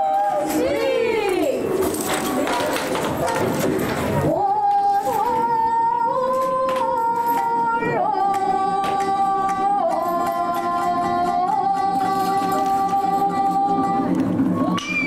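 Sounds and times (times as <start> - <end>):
person chanting long sung notes: 4.3 - 14.7.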